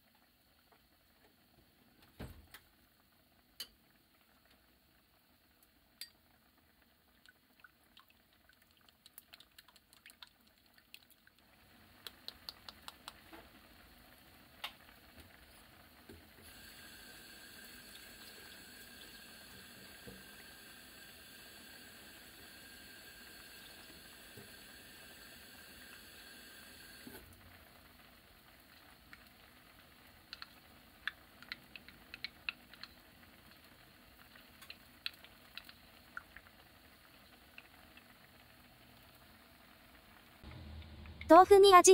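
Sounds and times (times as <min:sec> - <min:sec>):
broth simmering and bubbling: 0:00.0 - 0:41.3.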